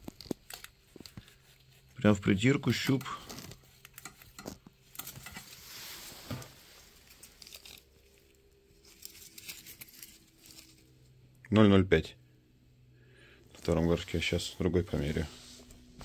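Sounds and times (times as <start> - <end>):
jacket fabric rustling: 4.4 - 11.2, 13.6 - 16.0.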